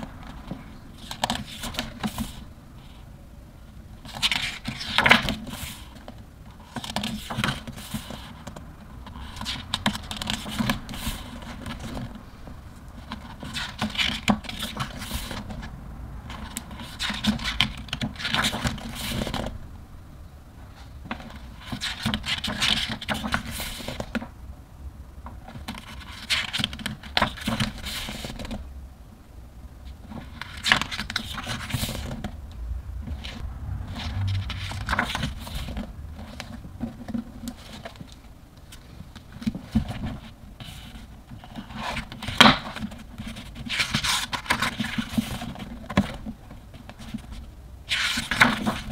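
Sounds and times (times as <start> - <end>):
book pages turning: 0.0 - 3.0, 9.1 - 12.1, 16.3 - 19.5, 21.1 - 24.3, 30.0 - 32.4, 34.2 - 48.9
paper rustling: 20.8 - 24.3, 30.0 - 32.4, 34.2 - 48.9.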